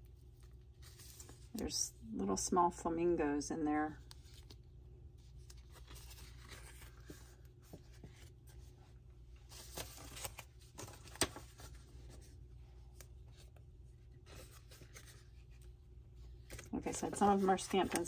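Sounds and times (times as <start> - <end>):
paper rustling: 0.2 - 1.6, 4.0 - 8.8, 9.4 - 18.0.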